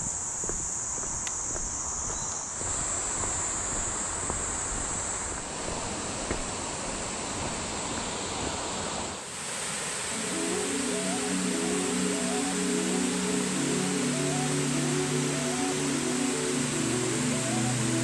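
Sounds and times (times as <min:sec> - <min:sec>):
insects droning: 0:00.0 - 0:09.2, 0:09.8 - 0:18.0
flowing water rushing: 0:02.6 - 0:18.0
waterfall rushing: 0:05.5 - 0:18.0
music: 0:10.2 - 0:18.0.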